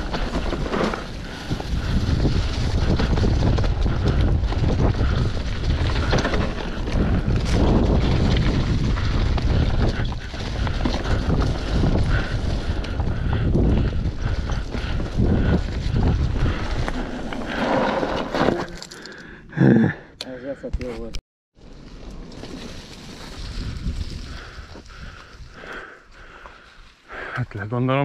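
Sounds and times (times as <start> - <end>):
wind buffeting microphone: 0.0 - 17.6, 23.1 - 27.3
mountain bike rattling on rough trail: 0.0 - 19.2, 21.6 - 27.3.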